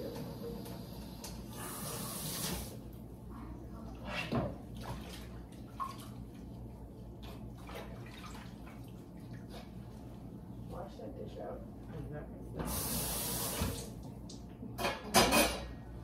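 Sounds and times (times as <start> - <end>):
steady low hum: 2.6 - 16.0.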